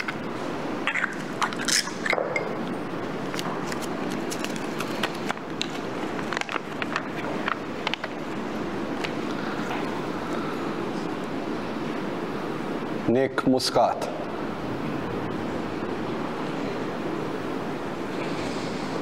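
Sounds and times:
room background noise: 0.0s - 19.0s.

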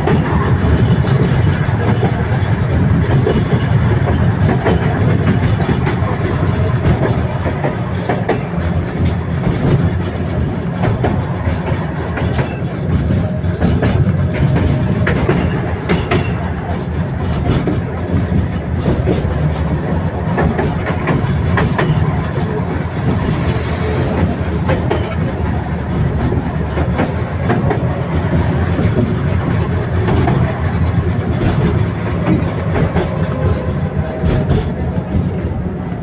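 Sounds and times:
track clicks and knocks: 0.0s - 36.0s
tram wheels rumbling on rails: 0.0s - 36.0s.

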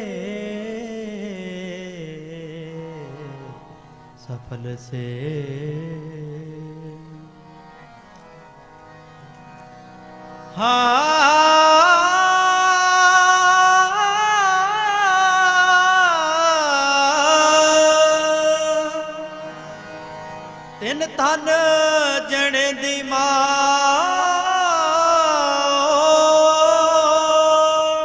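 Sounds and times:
harmonium drone: 0.0s - 28.0s.

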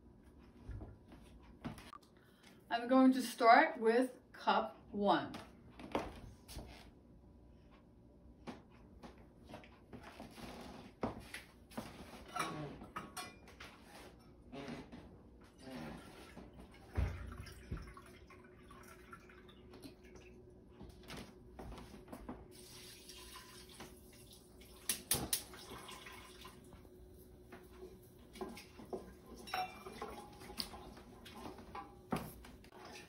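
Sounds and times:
broth pouring into pot: 22.5s - 26.6s
cup clinking on pot: 29.4s - 30.4s.

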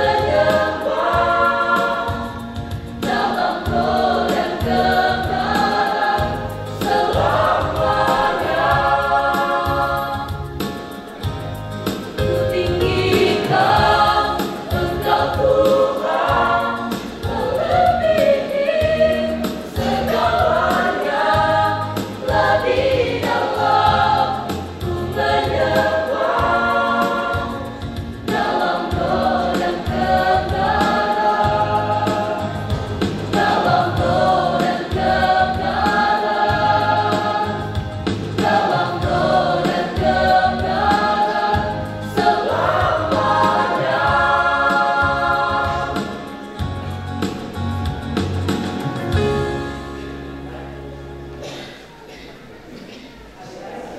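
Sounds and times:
mixed choir singing: 0.0s - 47.6s.

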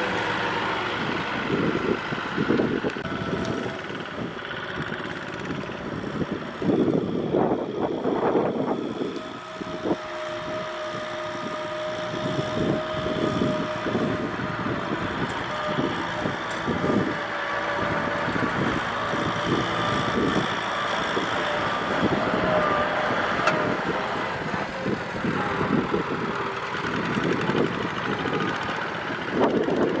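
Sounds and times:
tractor diesel engine under load: 0.0s - 30.0s
tyres churning wet mud: 9.3s - 30.0s.

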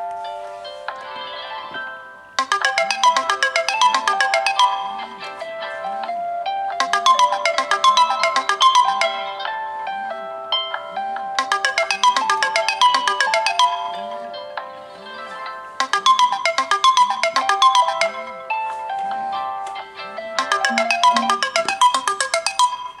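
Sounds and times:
phone alarm ringtones: 2.4s - 5.2s, 6.8s - 9.4s, 11.4s - 14.3s, 15.8s - 18.6s, 20.4s - 23.0s.

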